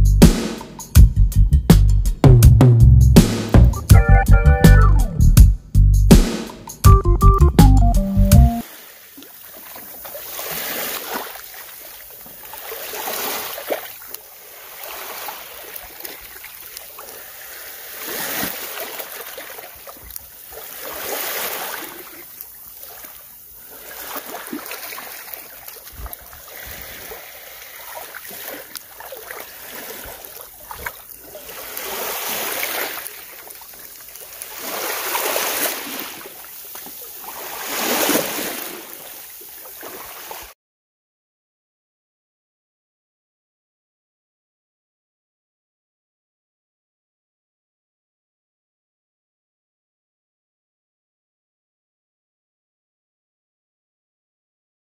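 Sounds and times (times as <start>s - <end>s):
small waves lapping on sand: 8.6s - 40.6s.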